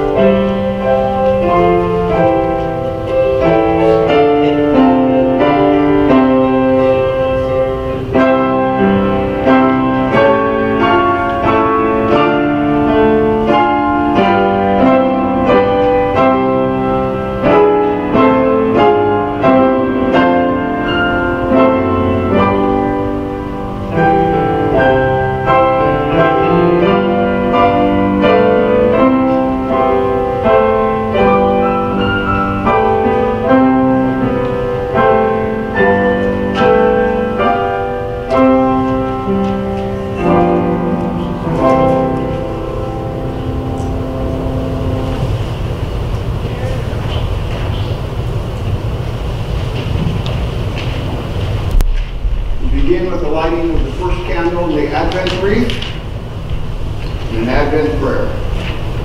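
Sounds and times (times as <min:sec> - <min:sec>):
grand piano chords: 0:00.0 - 0:59.0.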